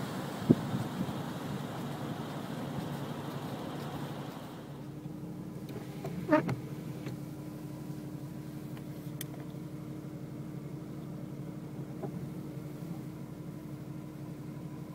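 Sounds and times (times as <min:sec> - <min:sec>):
car engine and road noise: 0:00.0 - 0:14.9
light click: 0:08.8 - 0:09.5.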